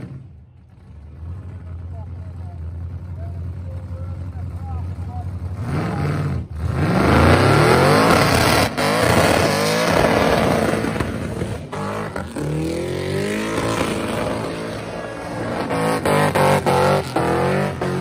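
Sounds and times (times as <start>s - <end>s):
engine revving hard: 5.5s - 18.0s.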